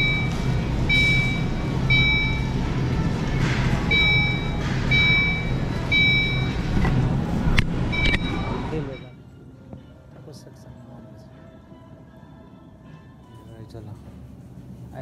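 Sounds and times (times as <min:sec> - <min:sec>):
electronic beeper tone: 0:00.0 - 0:02.6, 0:07.9 - 0:09.2
low machinery hum: 0:00.0 - 0:10.1.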